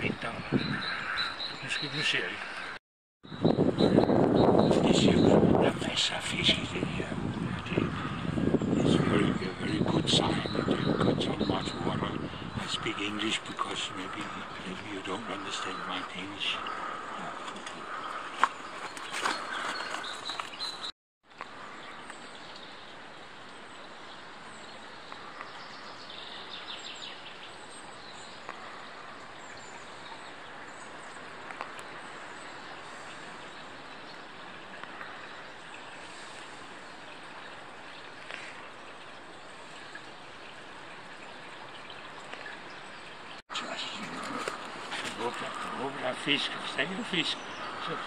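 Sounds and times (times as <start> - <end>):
bird chirps: 0.0 - 6.8
small stream running: 0.0 - 48.0.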